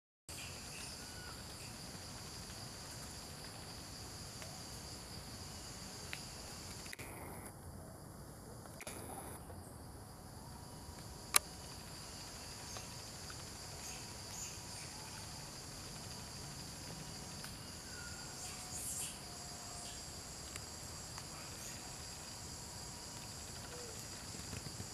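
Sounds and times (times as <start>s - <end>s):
insects chirping: 0.3s - 24.9s
sharp click: 8.8s - 9.3s.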